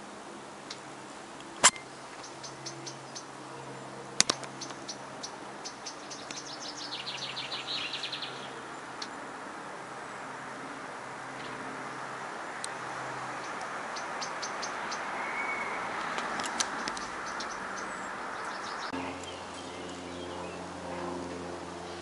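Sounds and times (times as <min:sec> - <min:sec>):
songbirds chirping: 0:00.0 - 0:22.0
sharp clicks: 0:01.6 - 0:02.3, 0:04.2 - 0:04.9, 0:16.0 - 0:17.6.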